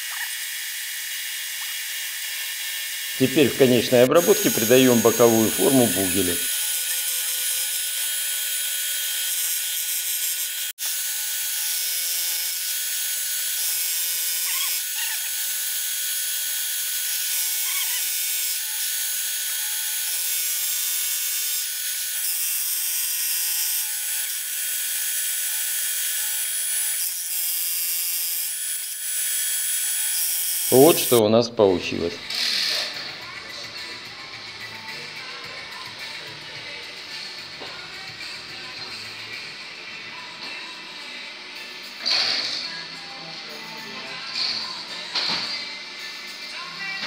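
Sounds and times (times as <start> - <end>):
milling machine cutting metal: 0.4 - 31.2.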